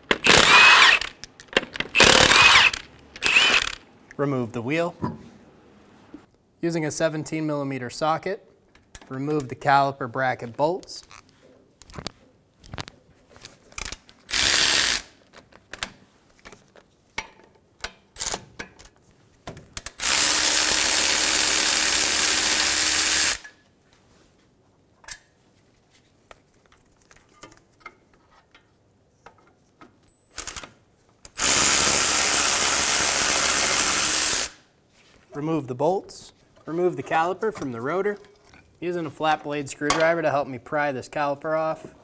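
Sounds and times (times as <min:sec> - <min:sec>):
ratchet and socket clicks: 0:00.1 - 0:03.8
power ratchet running: 0:00.2 - 0:01.1, 0:01.9 - 0:03.8, 0:14.3 - 0:15.1, 0:20.0 - 0:23.4, 0:31.4 - 0:34.6.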